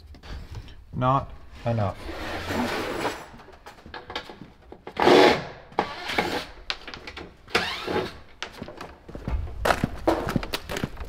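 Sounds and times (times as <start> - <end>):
tool and wood noise: 1.8 - 9.4.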